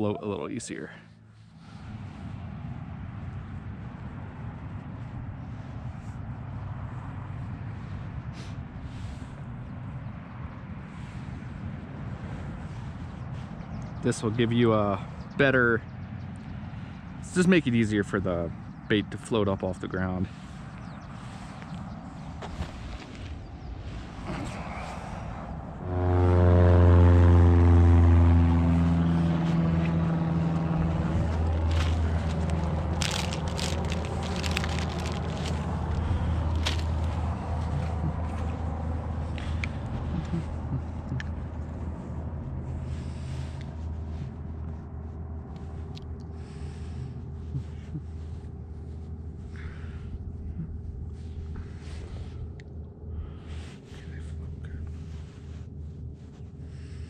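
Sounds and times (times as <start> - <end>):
low engine drone: 0.0 - 57.0
scattered clicks and rustles: 31.3 - 38.6.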